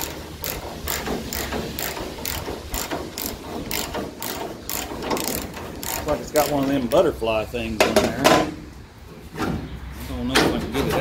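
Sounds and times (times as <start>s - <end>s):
socket ratchet clicking: 0.0s - 6.6s.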